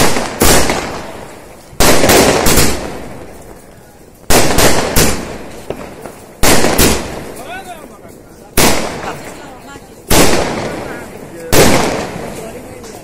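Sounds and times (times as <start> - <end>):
firework shells bursting: 0.0 - 7.6.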